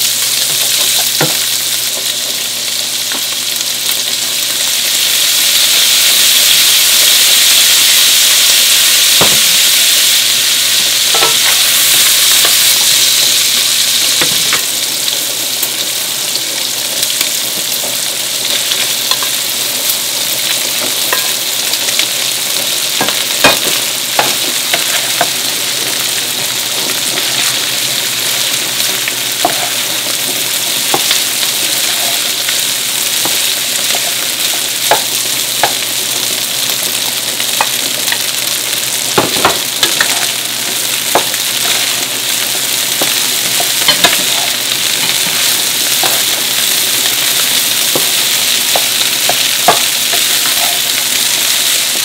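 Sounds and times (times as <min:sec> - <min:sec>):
food sizzling in a hot pan: 0:00.0 - 0:52.0
spatula scraping and knocking pan: 0:11.1 - 0:13.0, 0:20.5 - 0:21.4, 0:23.0 - 0:25.5, 0:28.8 - 0:35.8, 0:39.2 - 0:51.8.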